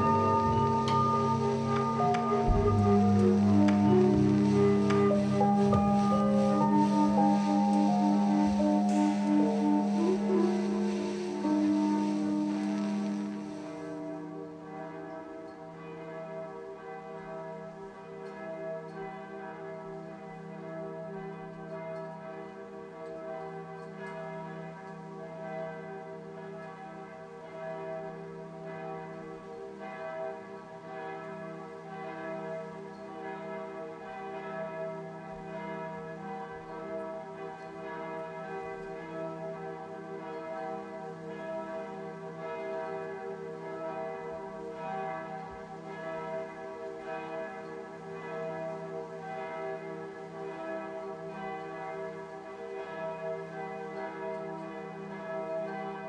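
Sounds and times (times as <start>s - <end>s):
church bells pealing: 0.0s - 56.0s.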